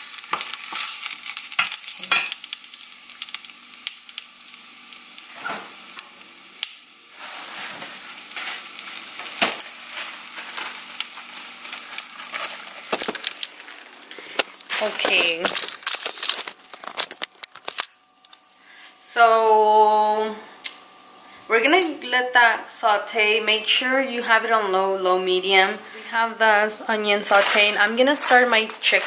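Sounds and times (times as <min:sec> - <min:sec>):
onions sizzling in oil: 0:00.0 - 0:15.0.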